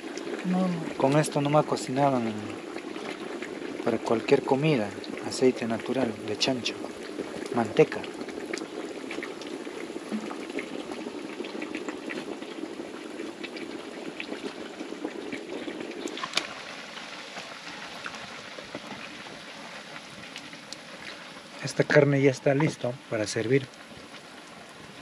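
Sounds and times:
pork frying in lard: 0.0s - 25.0s
fat spitting and popping: 10.1s - 11.0s.

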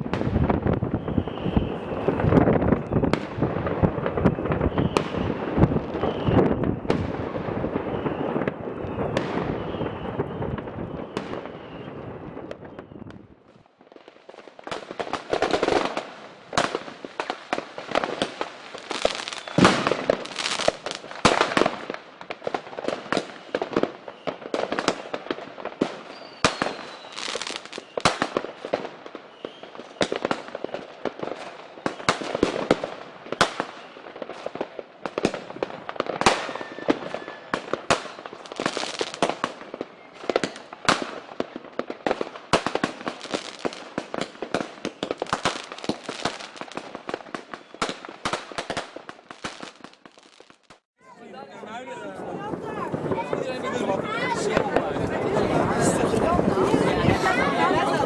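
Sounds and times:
fireworks bangs and crackles: 0.0s - 58.0s
faint falling whistle: 1.0s - 1.9s, 4.6s - 5.4s, 6.0s - 6.5s, 7.8s - 12.0s, 26.1s - 27.2s, 36.4s - 37.6s.

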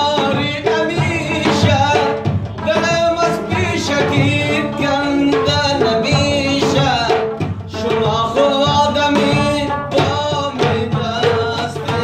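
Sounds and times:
person singing: 0.0s - 12.0s.

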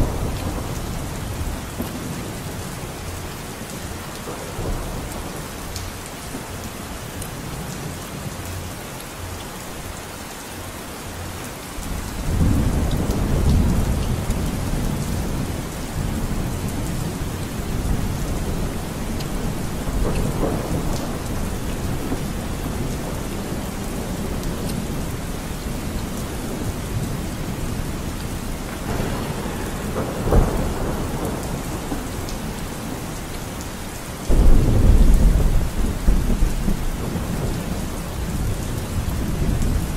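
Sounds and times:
rolling thunder: 0.0s - 3.0s, 12.2s - 33.6s, 34.3s - 39.9s
steady rain: 0.0s - 39.9s.

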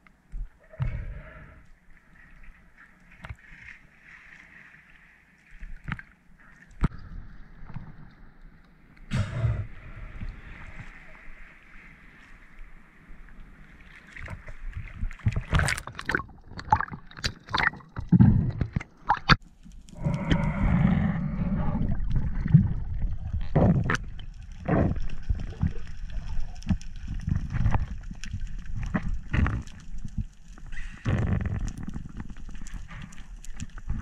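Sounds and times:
underwater rushing and bubbling: 0.0s - 34.0s
water splashing: 9.1s - 20.5s.

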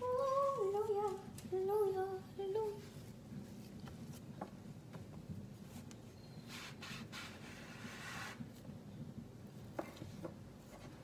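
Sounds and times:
high voice humming: 0.0s - 2.8s.

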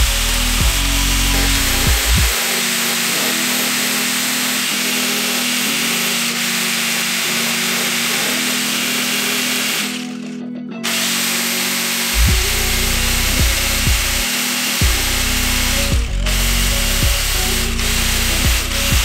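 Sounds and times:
background music with bass line: 0.0s - 2.4s, 12.1s - 19.0s
angle grinder sanding steel: 0.0s - 19.0s.

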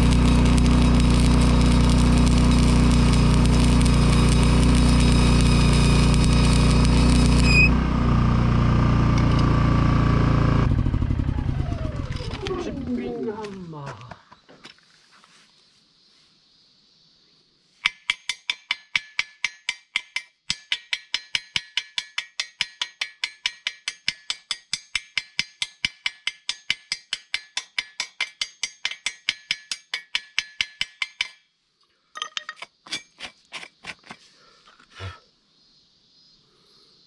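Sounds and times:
chipping hammer tapping steel: 0.0s - 7.7s, 17.8s - 31.4s
steel tube ringing: 0.0s - 7.7s.

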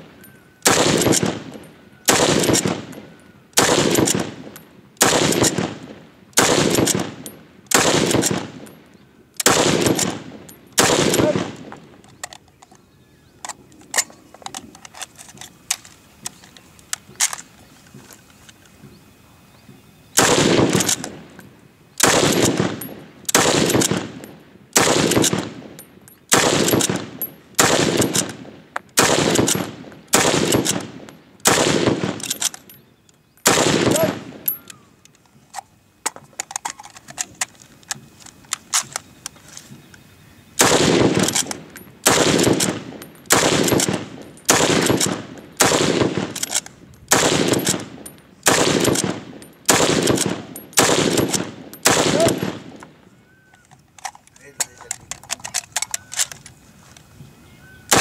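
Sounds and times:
rifle shots echoing: 0.0s - 8.8s, 9.4s - 11.9s, 20.2s - 21.4s, 22.0s - 32.7s, 33.4s - 34.7s, 40.6s - 53.0s.

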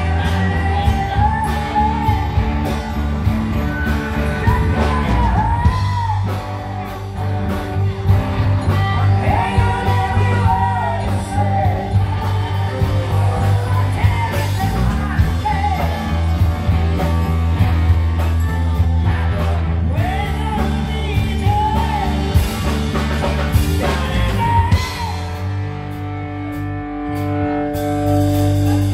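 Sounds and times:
woman singing: 0.0s - 6.5s, 8.6s - 17.1s, 18.2s - 22.7s, 23.6s - 25.4s
live rock band playing: 0.0s - 28.9s.

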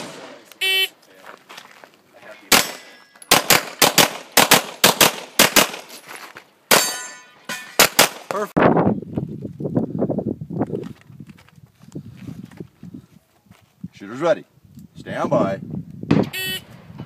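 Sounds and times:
pistol shots: 2.5s - 5.9s, 6.7s - 8.3s.

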